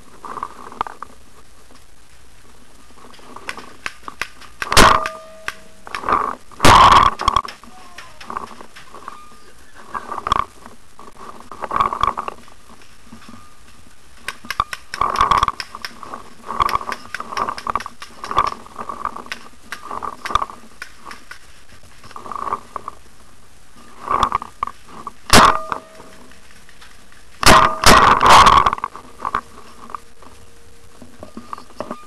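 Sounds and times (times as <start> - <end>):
sharp clicks: 3.4 - 8.9, 14.2 - 21.5.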